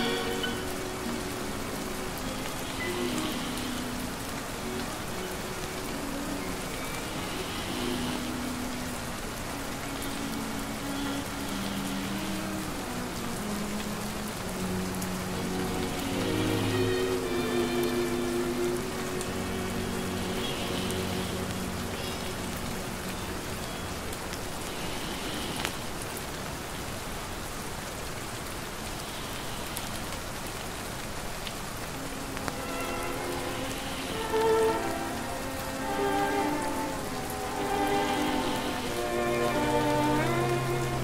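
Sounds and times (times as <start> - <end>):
soft jazz music: 0.0 - 23.9, 31.8 - 41.0
steady rain falling: 0.0 - 41.0.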